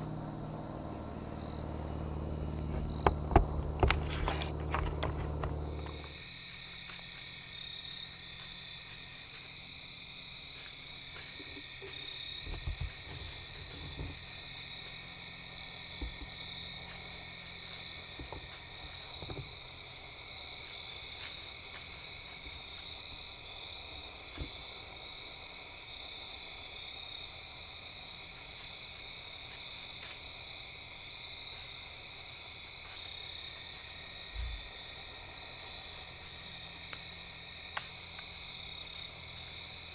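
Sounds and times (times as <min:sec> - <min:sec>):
faint low bumps: 0:00.0 - 0:06.2
insects and frogs calling: 0:00.0 - 0:39.9.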